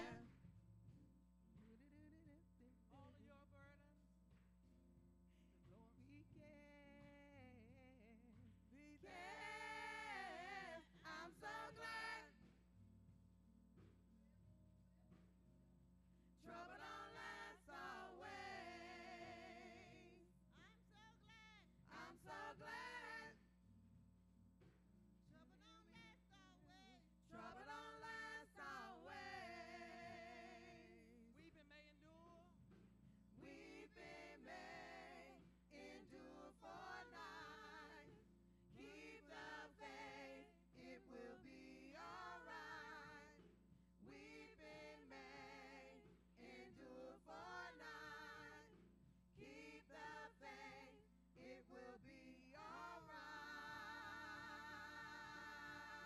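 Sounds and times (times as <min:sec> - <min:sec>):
women singing together: 0:00.0 - 0:00.3, 0:06.0 - 0:12.5, 0:16.4 - 0:20.2, 0:21.9 - 0:23.4, 0:27.2 - 0:32.0, 0:33.4 - 0:56.0.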